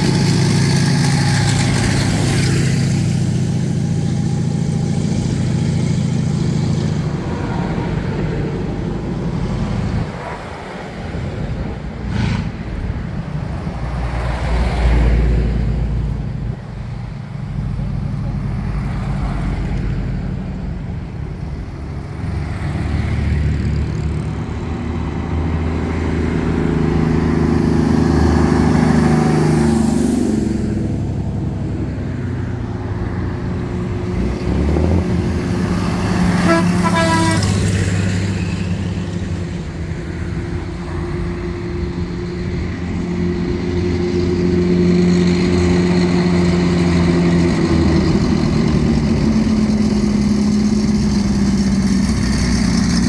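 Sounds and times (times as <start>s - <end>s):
heavier engine approaching: 0.0s - 53.0s
vehicle engines driving past: 0.0s - 53.0s
vehicle horn: 36.3s - 37.8s.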